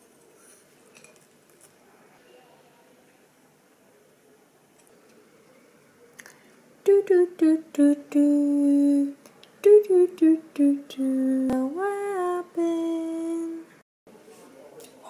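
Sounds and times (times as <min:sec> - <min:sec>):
woman humming a tune: 0:06.9 - 0:13.8.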